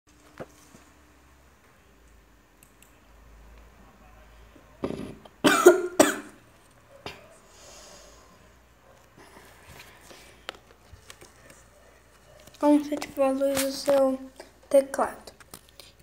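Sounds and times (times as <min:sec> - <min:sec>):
person coughing: 0:04.8 - 0:06.4.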